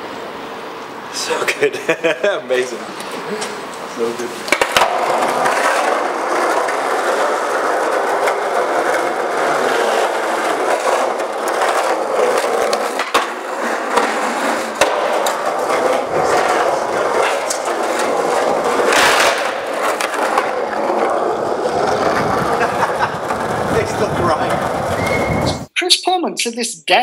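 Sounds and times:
skateboard wheels rolling on concrete: 0.0s - 25.7s
skateboard clacking on ground: 4.4s - 25.3s.

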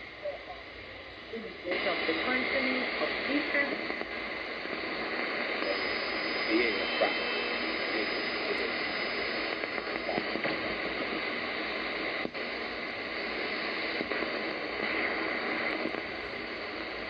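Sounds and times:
shortwave radio static and hiss: 0.0s - 17.0s.

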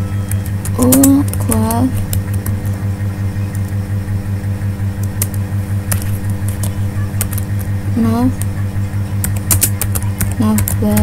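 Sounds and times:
loud pulsing low hum: 0.0s - 11.0s
keyboard keystrokes clicking: 0.2s - 2.8s, 5.0s - 7.7s, 9.2s - 11.0s.

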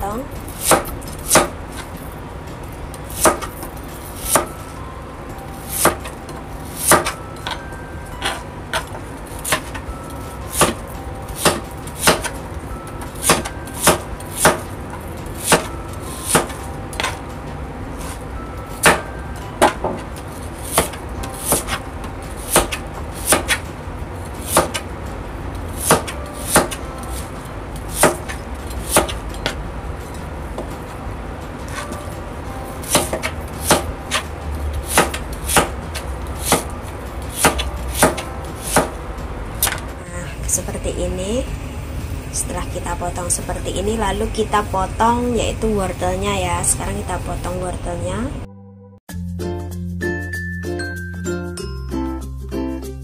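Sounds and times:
low steady hum: 0.0s - 48.5s
knife chopping on plastic board: 3.1s - 3.6s, 5.7s - 6.1s, 6.8s - 7.2s, 11.4s - 12.4s, 13.2s - 14.7s, 15.4s - 15.7s, 16.3s - 17.2s, 18.8s - 21.8s, 22.4s - 23.7s, 24.5s - 24.8s, 25.8s - 26.8s, 27.9s - 29.2s, 32.8s - 34.3s, 34.9s - 36.7s, 37.3s - 39.0s.

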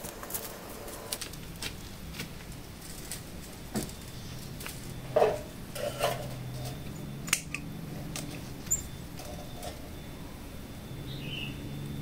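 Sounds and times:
faint low hum: 0.0s - 12.0s
clicks and snaps of branches: 7.2s - 8.4s.

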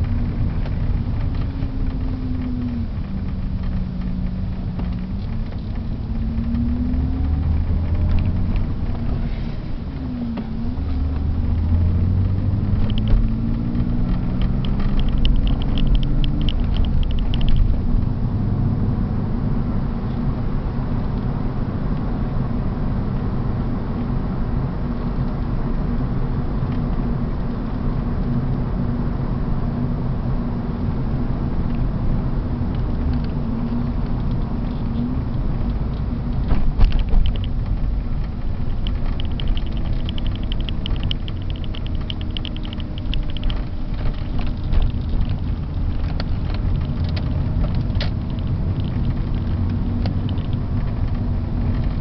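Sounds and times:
car engine and tyre rumble: 0.0s - 52.0s
fast even ticking: 38.3s - 50.6s.

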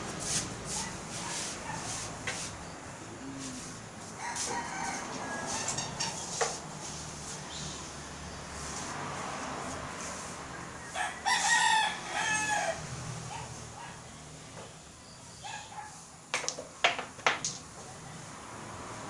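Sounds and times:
rooster crowing: 4.1s - 6.2s, 10.8s - 13.1s.

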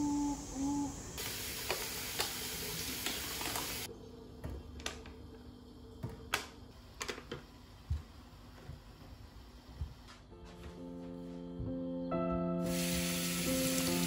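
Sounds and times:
steady hiss: 0.0s - 3.9s, 12.6s - 14.0s.

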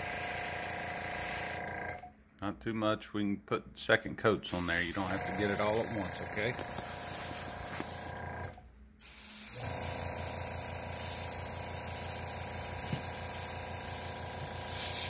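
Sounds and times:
airbrush spraying hiss: 4.5s - 8.1s, 9.0s - 15.0s.

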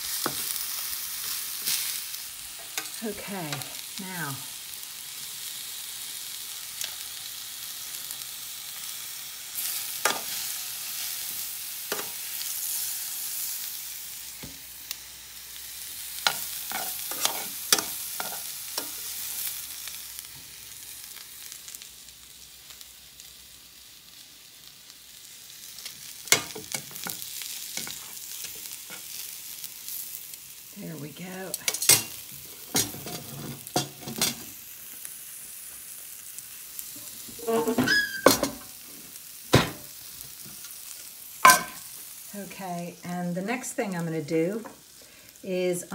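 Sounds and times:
meat sizzling in a pan: 0.0s - 45.9s
metal tongs clicking on pan: 31.6s - 32.2s.

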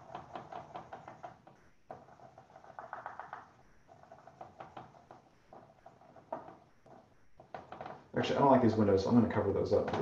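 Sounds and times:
marker scratching on paper: 0.0s - 7.8s.

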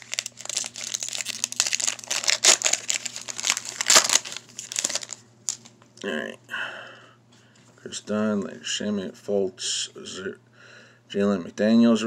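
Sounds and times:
foil wrapper crinkling: 0.0s - 5.7s
foil wrapper ripping: 0.0s - 5.7s.

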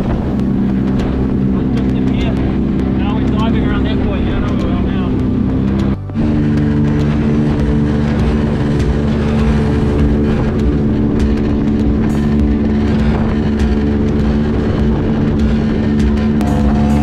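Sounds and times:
motorboat motor drone: 0.0s - 17.0s
water slapping against hull: 0.0s - 17.0s.

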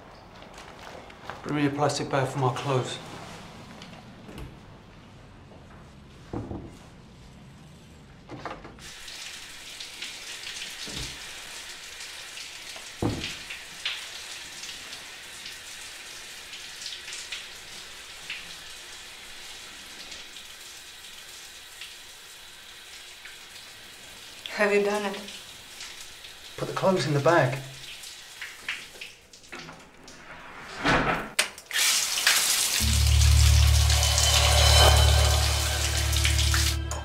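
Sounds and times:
water spraying from shower head: 31.7s - 37.0s.

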